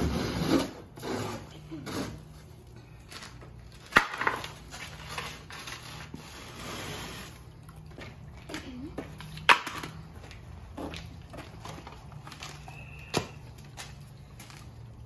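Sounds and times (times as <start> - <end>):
ice scrapers scraping ice: 0.0 - 2.6, 4.9 - 7.5.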